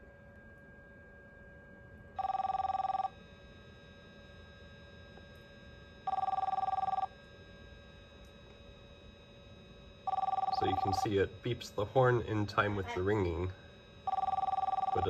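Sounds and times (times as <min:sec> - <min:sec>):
car phone ringing: 0:02.2 - 0:03.2, 0:06.0 - 0:07.1, 0:10.1 - 0:15.0.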